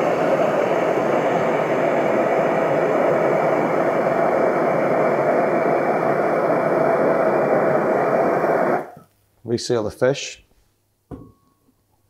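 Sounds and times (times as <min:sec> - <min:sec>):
blowtorch flame rushing: 0:00.0 - 0:09.0.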